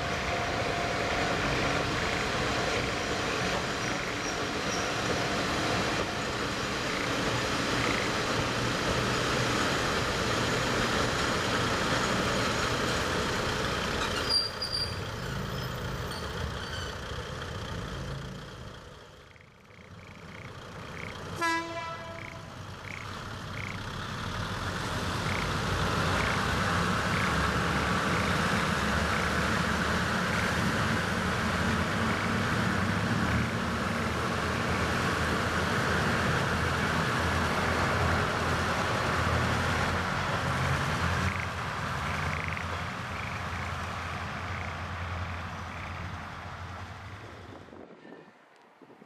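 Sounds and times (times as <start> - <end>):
train wheels on rails: 0.0 - 19.2, 20.1 - 49.0
diesel train running past: 0.0 - 49.0
frogs croaking: 6.3 - 8.3, 19.3 - 21.4, 22.1 - 24.1, 25.1 - 31.0, 41.3 - 46.3.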